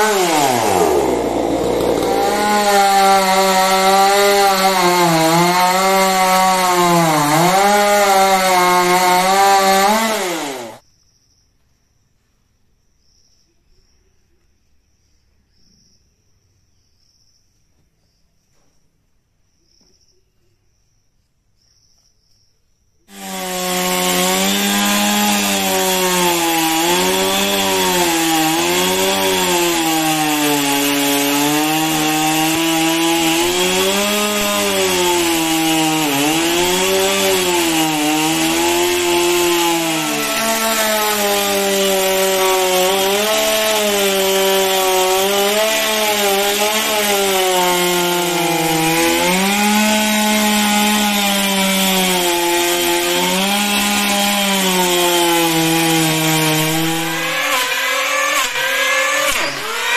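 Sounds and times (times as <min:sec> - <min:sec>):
chainsaw cutting wood: 0:00.0 - 0:10.8, 0:23.1 - 0:59.9.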